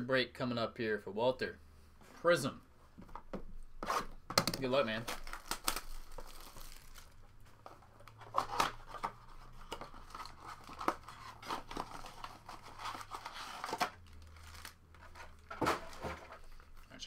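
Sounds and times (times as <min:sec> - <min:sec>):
foil wrappers crinkling: 0:04.6 - 0:07.4, 0:08.8 - 0:15.2.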